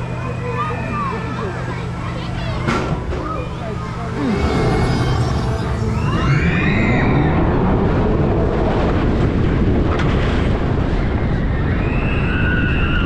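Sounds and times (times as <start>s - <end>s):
roller coaster rumbling on track: 0.0s - 13.0s
rising whine: 4.0s - 9.7s
riders screaming: 4.2s - 7.5s.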